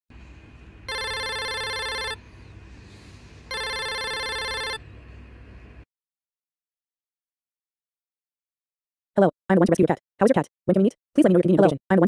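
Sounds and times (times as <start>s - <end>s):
phone ringing: 0.9s - 2.2s, 3.5s - 4.8s.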